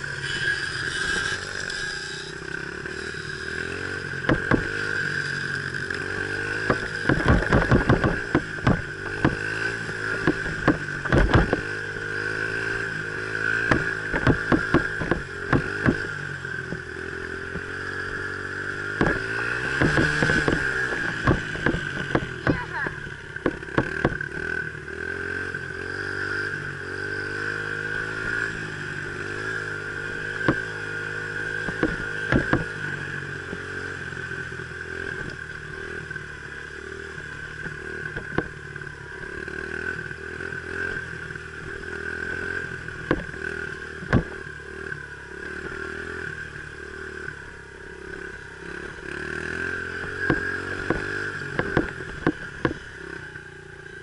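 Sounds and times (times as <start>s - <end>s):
dirt bike engine revving: 0.0s - 54.0s
sharp clattering knocks: 4.2s - 4.8s, 6.5s - 11.8s, 13.4s - 16.9s, 18.9s - 24.4s, 30.2s - 30.7s, 31.5s - 32.9s, 37.6s - 38.6s, 42.9s - 44.4s, 50.0s - 52.9s.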